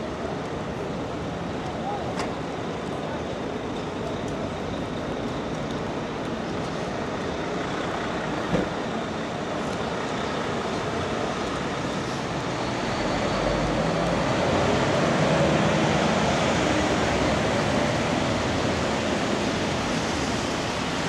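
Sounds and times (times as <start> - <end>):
traffic on wet road: 0.0 - 21.0.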